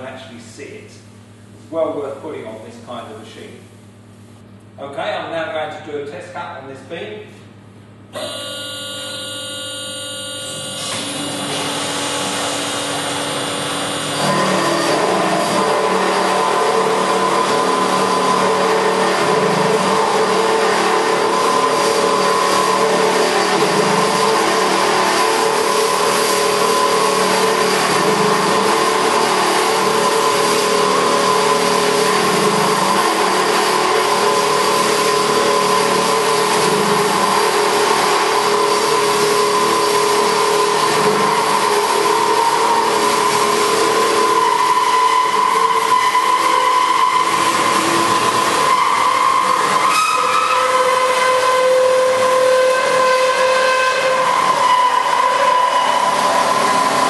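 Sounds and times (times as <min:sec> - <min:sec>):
bandsaw cutting steel: 0:08.2 - 0:57.0.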